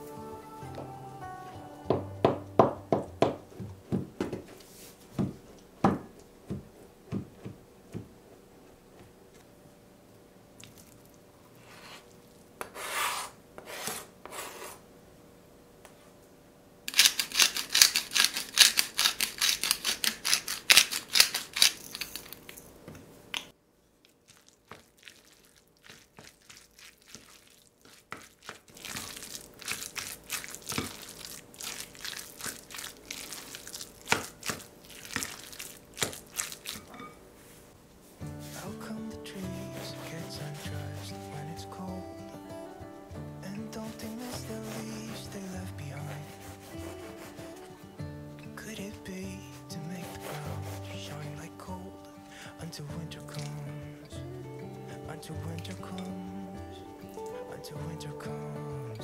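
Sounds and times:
spoon mixing in a glass bowl: 24.3 - 37.2.

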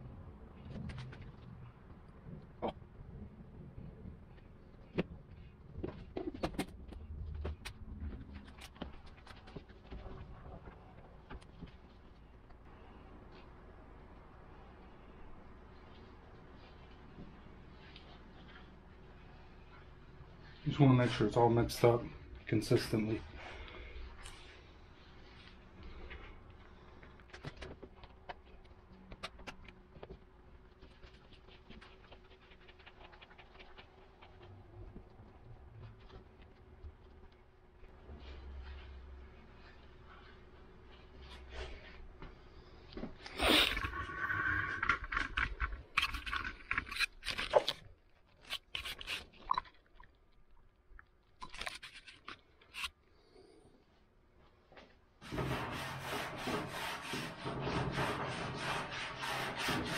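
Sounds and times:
faint steady hum: 0.0 - 56.1
scraping and clicking handling noises: 44.8 - 49.6, 51.3 - 53.0.

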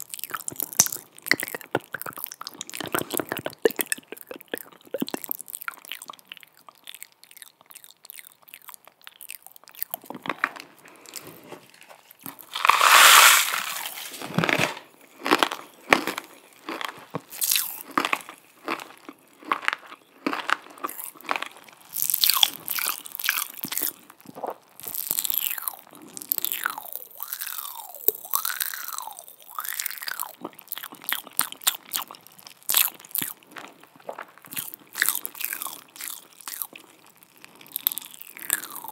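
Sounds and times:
tongue clicks: 0.0 - 10.0
wet lip smacks: 0.2 - 7.1.

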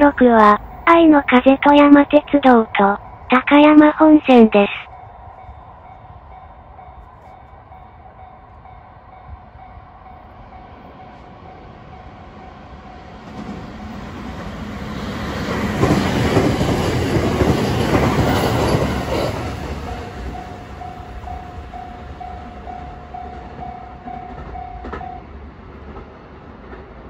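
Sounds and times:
electric train running past: 0.0 - 4.0, 4.8 - 27.0
level crossing warning bell: 18.4 - 25.2.

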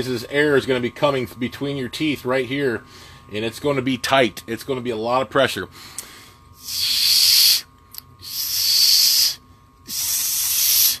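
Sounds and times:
man hissing through teeth: 6.6 - 11.0.

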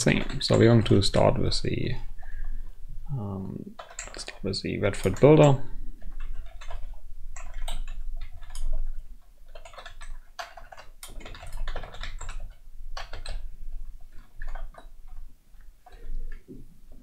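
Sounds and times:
typing on computer keyboard: 0.0 - 1.6, 3.8 - 13.5, 14.1 - 15.2.

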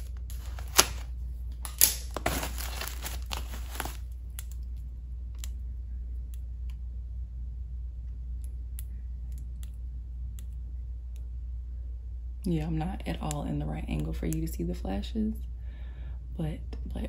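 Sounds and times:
plastic wrap crinkling: 0.0 - 4.6.

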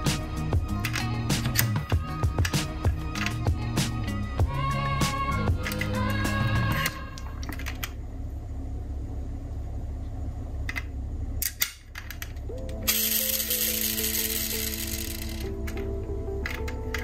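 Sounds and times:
music: 0.0 - 7.4, 12.4 - 17.0
low steady hum: 0.0 - 17.0
metal model car clicking: 11.4 - 17.0.

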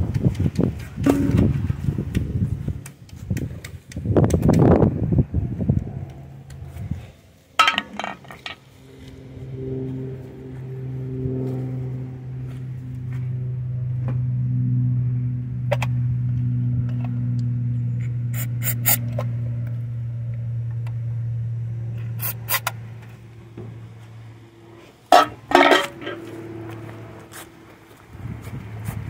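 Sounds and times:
car engine droning: 0.0 - 29.0
loud scraping: 22.0 - 23.0, 23.8 - 27.6.

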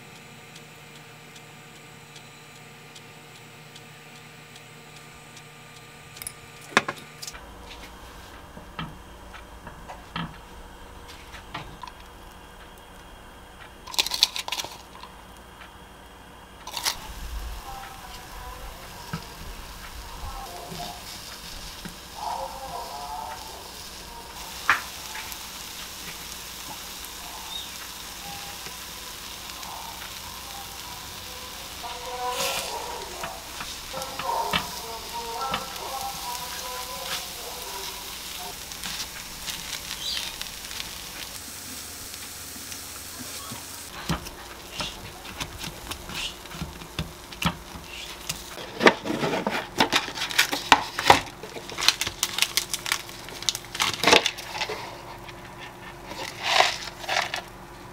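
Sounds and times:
batter sizzling in a pan: 0.0 - 57.5
wooden skewers tapping: 44.0 - 48.4
packaging clicks and rustles: 44.1 - 54.6.

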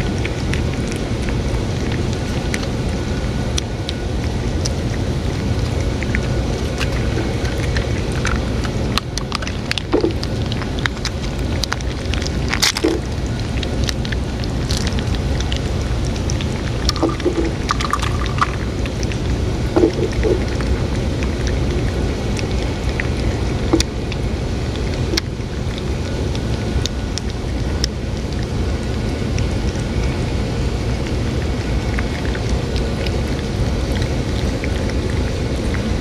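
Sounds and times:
cats lapping from metal bowl: 0.0 - 36.0
steady low rumble: 0.0 - 36.0.

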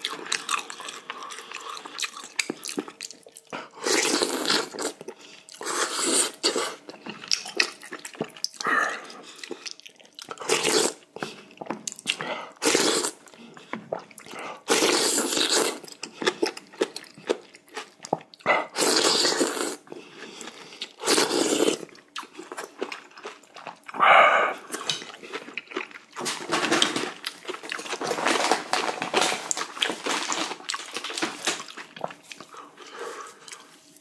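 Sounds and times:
person chewing: 0.0 - 28.5, 29.4 - 34.0
person slurping noodles: 3.7 - 5.0, 5.6 - 6.8, 10.4 - 11.0, 12.6 - 13.3, 13.9 - 16.5, 18.5 - 21.9.

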